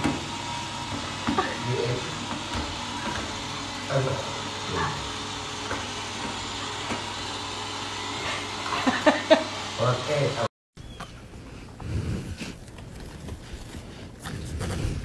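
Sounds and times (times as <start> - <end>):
robot vacuum cleaner whirring: 0.0 - 10.5.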